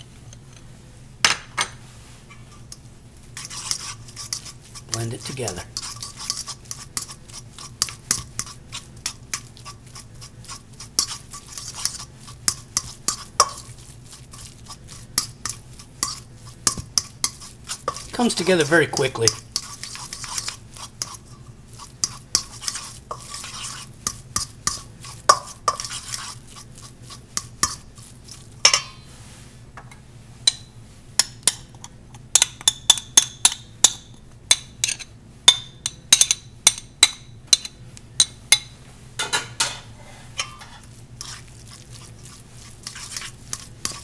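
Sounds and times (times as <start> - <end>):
fork clicking and scraping bowl: 2.5 - 29.1, 30.4 - 39.7, 40.4 - 44.0.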